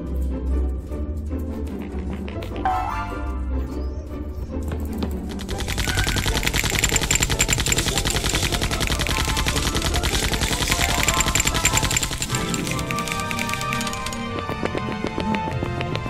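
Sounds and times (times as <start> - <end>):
rapid machine-gun firing effect: 5.3 - 14.3.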